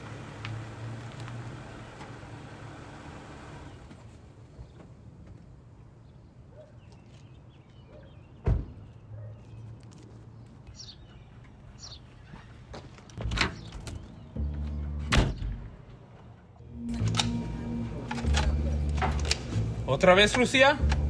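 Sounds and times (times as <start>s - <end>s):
birds chirping: 3.5s - 15.6s.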